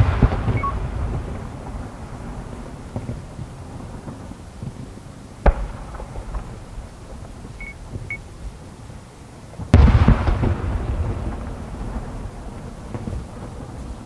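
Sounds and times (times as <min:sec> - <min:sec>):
distant firework shell bursting: 0:05.4 - 0:07.5.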